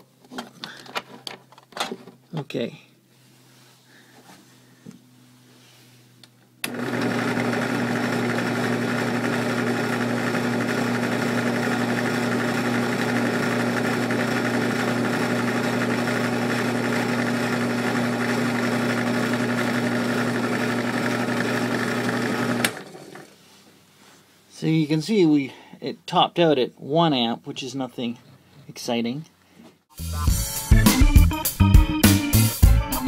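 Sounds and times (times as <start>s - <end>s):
electric motor humming: 6.6s - 23.3s.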